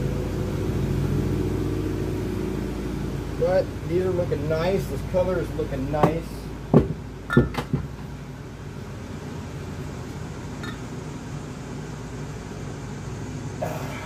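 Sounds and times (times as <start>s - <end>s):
electric fan humming: 0.0s - 14.0s
sharp knocks on metal: 6.0s - 7.9s.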